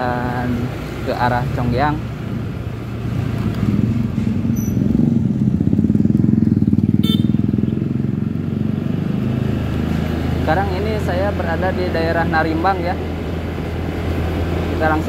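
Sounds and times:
motor scooter engine running: 3.7s - 8.7s.

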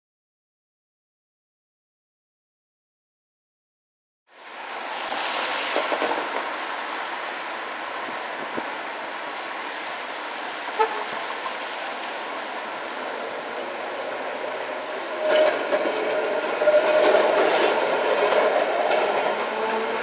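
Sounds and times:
tram wheels rumbling on rails: 4.4s - 20.0s
tram whine passing: 4.4s - 20.0s.

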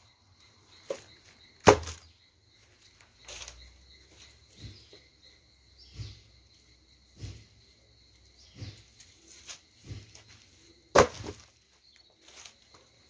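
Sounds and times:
wood logs knocking on grass: 1.6s - 2.1s, 10.9s - 11.5s
rustling grass: 8.6s - 12.8s.

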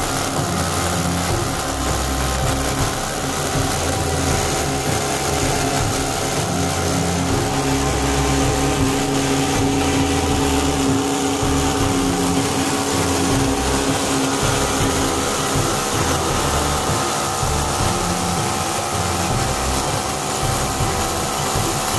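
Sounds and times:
model boat engine running: 0.0s - 21.9s.

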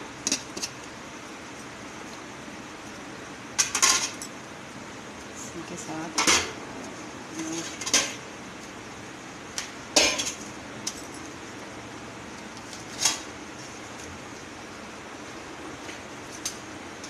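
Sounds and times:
metal kitchenware clinking: 10.0s - 11.2s.

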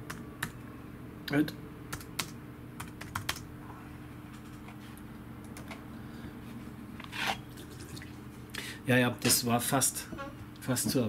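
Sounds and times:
faint steady hum: 0.0s - 11.0s
keystrokes on computer keyboard: 1.9s - 3.5s.

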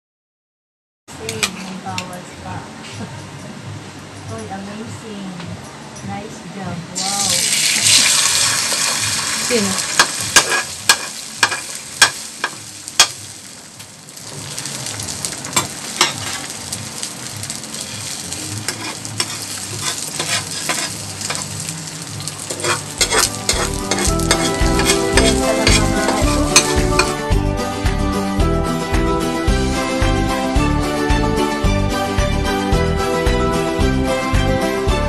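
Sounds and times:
background music: 1.1s - 35.0s
food sizzling in a frying pan: 7.0s - 27.3s
metal spatula scraping a pan: 9.8s - 12.2s, 17.8s - 21.7s, 22.4s - 27.2s.

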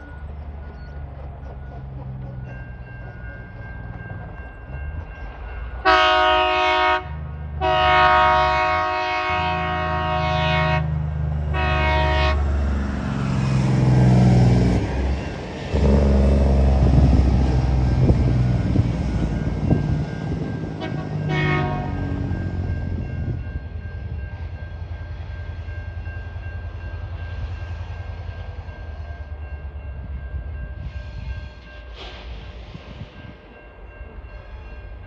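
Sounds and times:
diesel engines droning: 0.0s - 30.4s
train wheel noise: 0.0s - 35.0s
train horn blasts: 5.8s - 12.6s, 20.7s - 22.5s.

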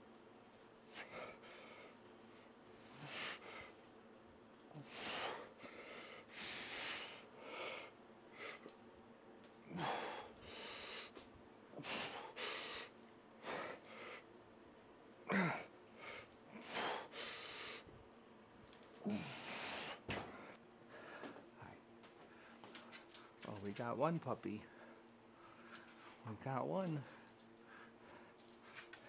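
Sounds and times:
man breathing hard: 0.8s - 3.8s, 4.7s - 8.8s, 9.6s - 14.3s, 15.3s - 17.9s, 19.0s - 23.4s.

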